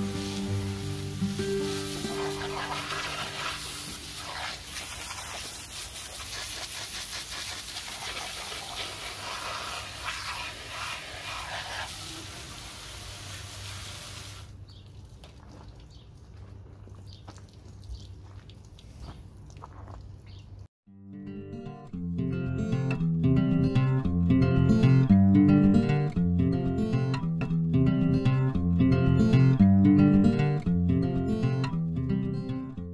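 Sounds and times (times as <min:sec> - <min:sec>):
pressure washer jet hissing: 0:00.0 - 0:14.5.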